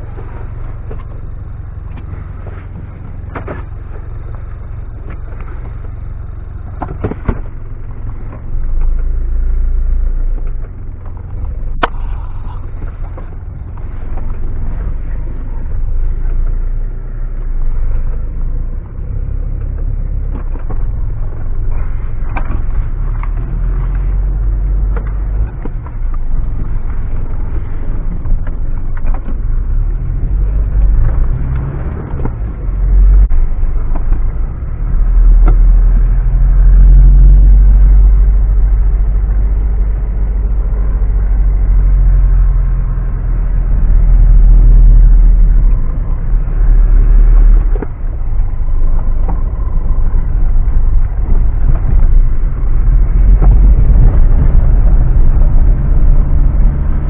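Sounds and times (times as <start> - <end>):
off-road vehicle engine rumble: 0.0 - 57.0.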